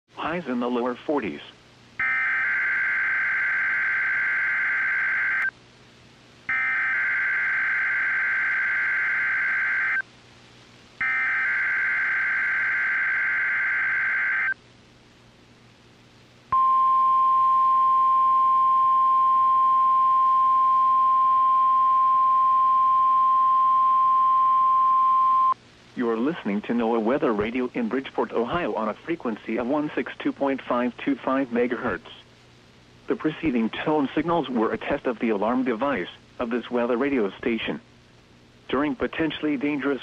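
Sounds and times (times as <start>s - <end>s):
steady weather alert tone: 0.3s - 5.5s, 6.5s - 10.0s, 11.0s - 14.6s.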